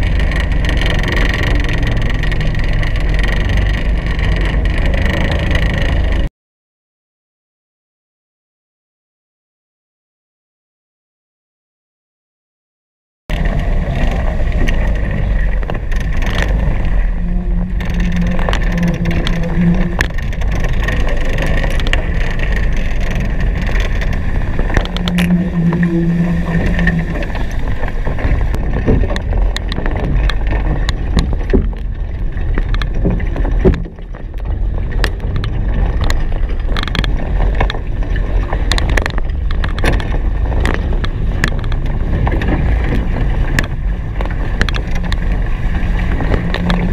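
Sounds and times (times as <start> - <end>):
water rushing and splashing: 13.3 - 46.9
wind buffeting microphone: 13.3 - 46.9.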